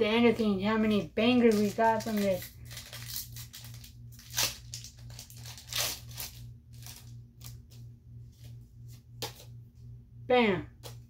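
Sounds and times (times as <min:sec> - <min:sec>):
foil wrapper tearing and crinkling: 0:01.3 - 0:07.7.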